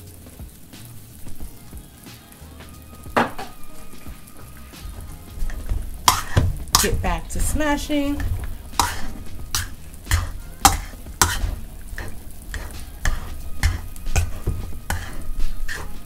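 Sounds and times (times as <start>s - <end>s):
potato masher knocking in bowl: 12.5s - 15.1s.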